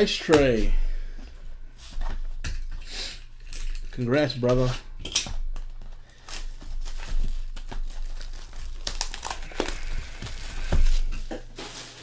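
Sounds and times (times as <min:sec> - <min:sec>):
plastic shrink-wrap tearing: 0:05.8 - 0:12.0.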